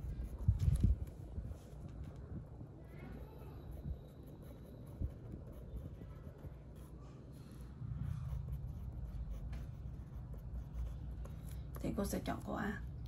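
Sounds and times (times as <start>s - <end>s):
scratchy writing strokes: 0.0s - 1.2s, 2.9s - 12.1s
low steady hum: 0.0s - 13.0s.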